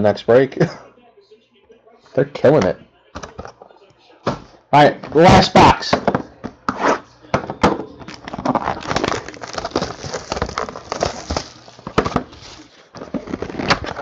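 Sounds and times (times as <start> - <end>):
wrapping and cardboard rustling: 8.0 - 14.0.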